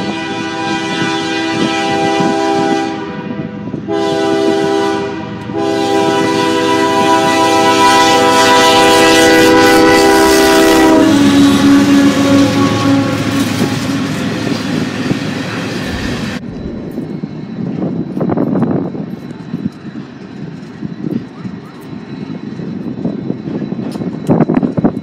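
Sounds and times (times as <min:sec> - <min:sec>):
locomotive air horn blasts: 0:00.0 - 0:14.5
diesel engine: 0:11.2 - 0:17.3
wheels on rails: 0:11.2 - 0:25.0.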